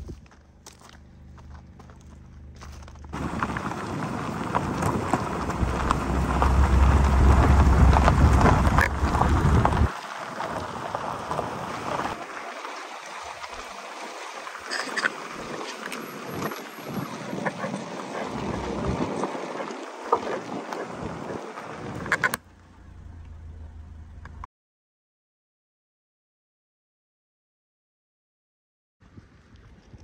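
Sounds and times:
low wind rumble on microphone: 0.0 - 12.2, 16.2 - 24.4
tyres crunching over gravel: 0.0 - 24.4
wind gusts: 2.4 - 24.2.

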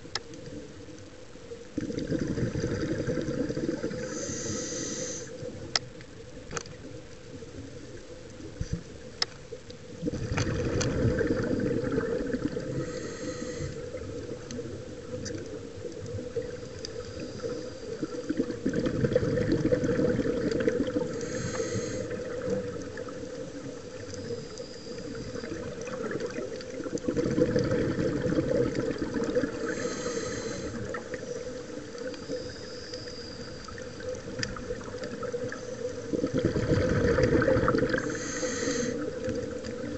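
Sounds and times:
exhaled bubbles underwater: 0.0 - 5.8, 9.8 - 39.9
regulator inhalation hiss: 4.0 - 5.4, 12.7 - 13.8, 21.1 - 22.1, 29.5 - 31.0, 38.0 - 39.1.

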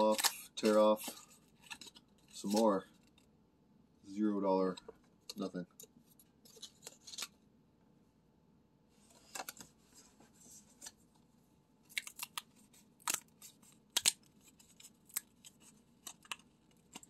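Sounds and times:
cardboard tabs snapping open: 13.0 - 17.0.

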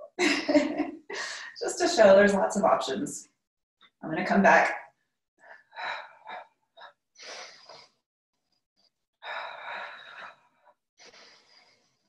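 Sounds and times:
woman breathing hard: 9.2 - 11.8.

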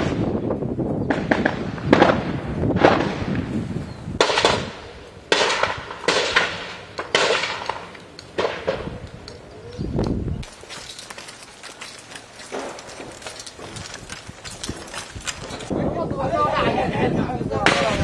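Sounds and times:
gunfire shots and bursts: 4.2 - 9.0.

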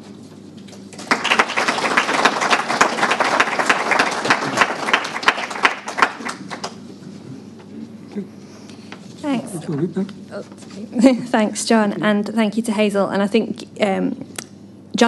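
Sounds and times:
audience applauding: 0.9 - 6.8.

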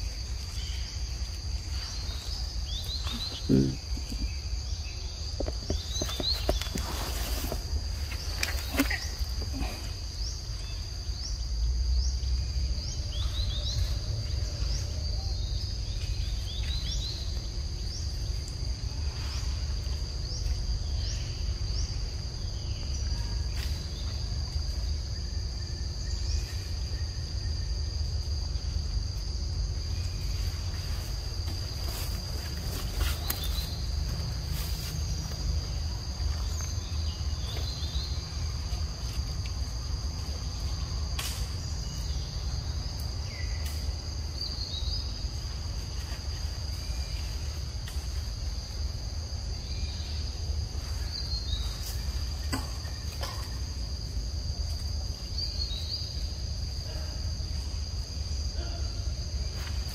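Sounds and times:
bird chirping: 0.0 - 7.5
insects droning: 0.0 - 59.9.

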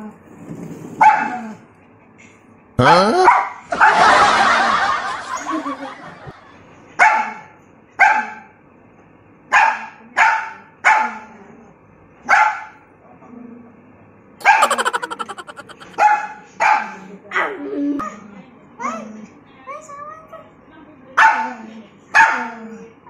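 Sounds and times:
puppy barking: 14.4 - 14.8.

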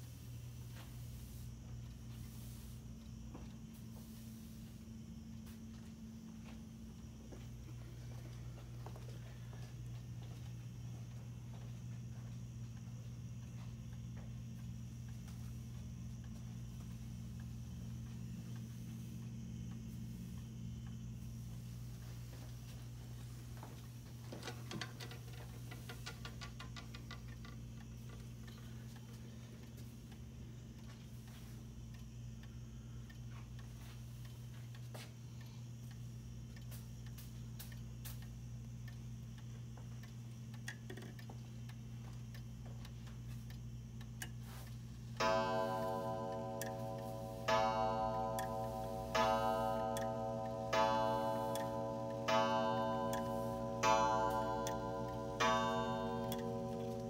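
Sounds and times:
steady low hum: 0.0 - 57.0
pendulum ticking: 45.2 - 57.0
wall clock clicking rapidly: 45.2 - 57.0.

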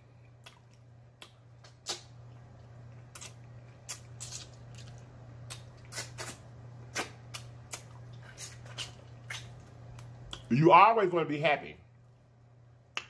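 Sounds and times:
steady low hum: 0.0 - 13.0
wet lip smacks and sucking: 0.4 - 10.5.

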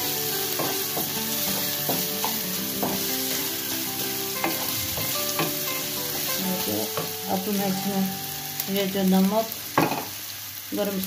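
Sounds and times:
meat sizzling in hot oil: 0.0 - 11.0
spatula scraping and tapping pan: 0.5 - 7.2.

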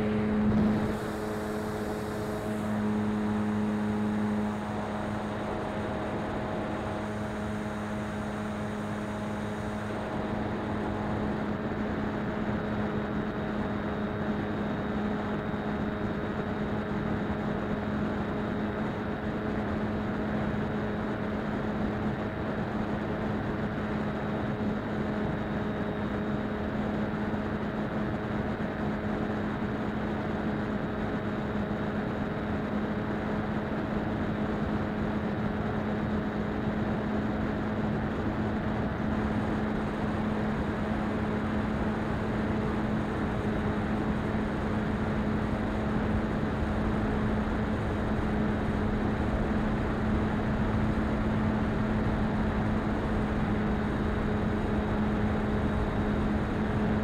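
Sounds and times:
model plane motor humming: 0.0 - 21.9
wind noise: 0.0 - 25.5.

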